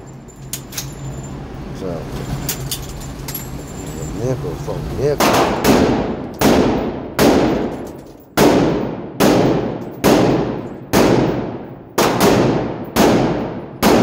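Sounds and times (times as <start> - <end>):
echoing gunshots: 5.2 - 14.0.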